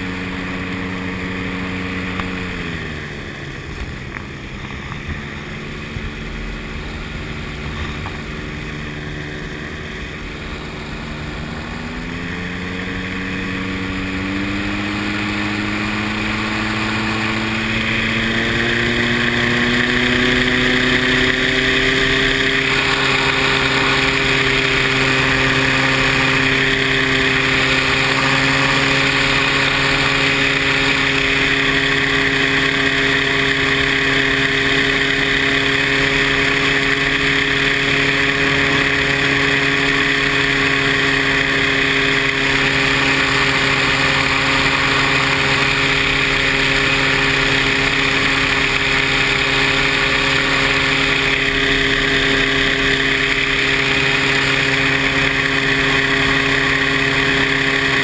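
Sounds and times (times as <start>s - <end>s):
paramotor engine running: 0.0s - 58.0s.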